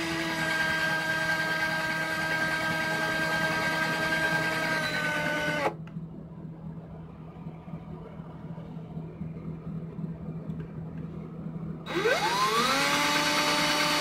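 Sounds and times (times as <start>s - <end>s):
cordless drill motor whining: 0.0s - 5.8s, 11.9s - 14.0s
faint low hum: 2.0s - 14.0s.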